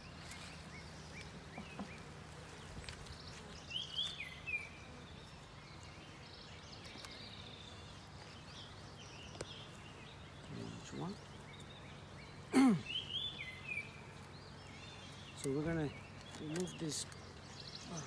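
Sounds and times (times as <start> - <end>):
bees humming: 0.0 - 18.0
songbird chirping: 0.0 - 18.0
faint bird calls: 7.0 - 18.0.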